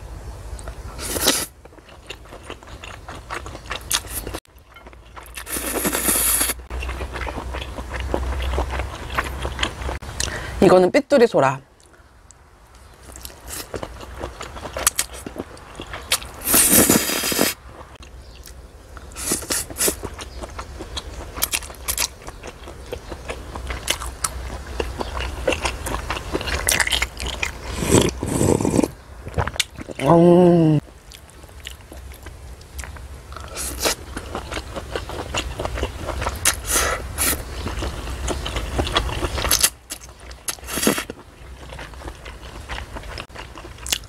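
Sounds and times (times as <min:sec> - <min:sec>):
chewing and crunching: 0:00.6 - 0:10.3, 0:12.8 - 0:30.1, 0:30.8 - 0:44.0
loud noodle slurps: 0:05.4 - 0:06.6, 0:16.4 - 0:17.6, 0:27.7 - 0:28.9
person humming: 0:30.0 - 0:30.8.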